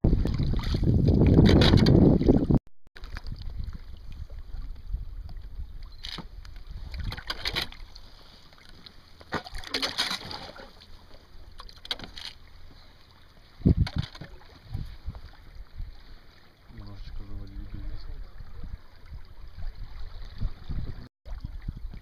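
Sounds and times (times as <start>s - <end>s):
wind rumble on microphone: 0.0s - 7.4s, 13.5s - 16.2s, 16.8s - 22.0s
river water splashing and lapping: 0.0s - 22.0s.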